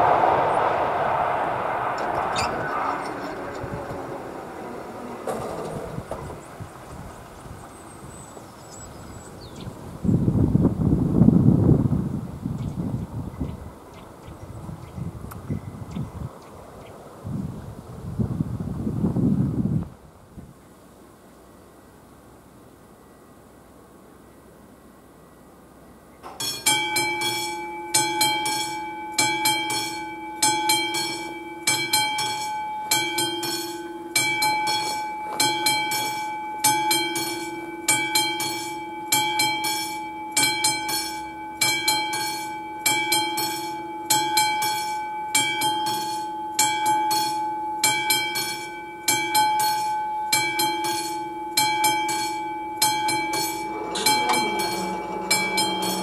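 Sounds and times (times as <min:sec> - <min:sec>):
level crossing warning bell ringing: 0:26.3 - 0:56.0.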